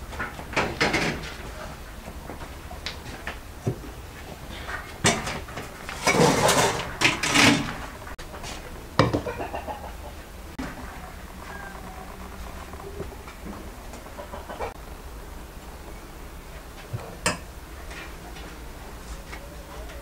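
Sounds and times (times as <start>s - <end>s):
metal pots and pans clattering: 0.2s - 1.6s, 4.5s - 8.2s.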